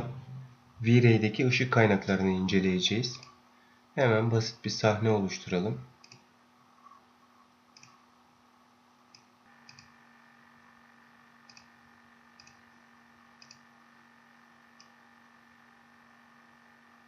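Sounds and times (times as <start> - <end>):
low electrical hum: 0.0 - 17.0
faint mouse clicks: 7.8 - 8.0, 11.5 - 11.7, 13.4 - 13.6.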